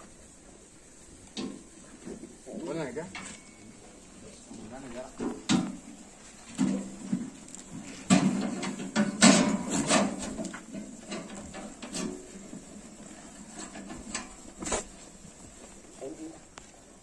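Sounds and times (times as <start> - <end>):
goats knocking metal trough: 5.1 - 12.4.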